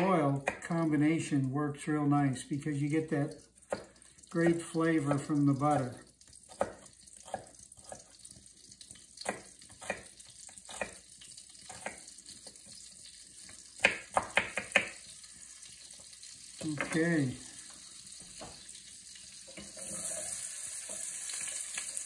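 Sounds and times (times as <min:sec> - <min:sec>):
knife chopping on wooden board: 0:00.4 - 0:00.7, 0:09.2 - 0:10.1, 0:10.7 - 0:11.0, 0:11.7 - 0:12.0, 0:13.8 - 0:15.0.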